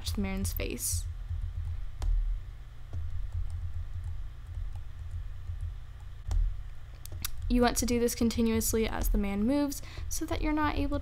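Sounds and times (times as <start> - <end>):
low electrical hum: 0.0 - 11.0
computer mouse clicks: 2.9 - 7.5.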